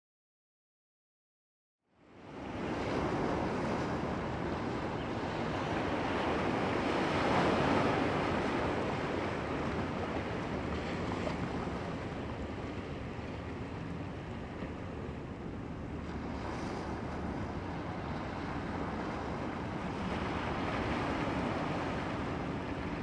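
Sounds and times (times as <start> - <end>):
waves breaking on rocky shore: 16.5 - 23.0.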